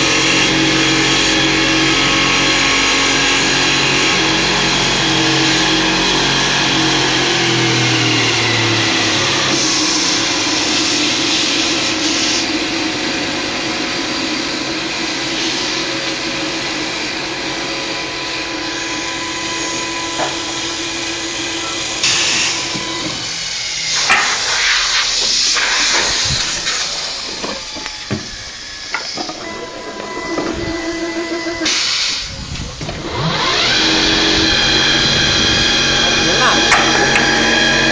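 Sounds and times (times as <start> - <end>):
lathe motor hum: 0.0 - 24.0, 32.9 - 37.9
cutters hissing on spinning wood: 0.0 - 30.0, 31.2 - 37.9.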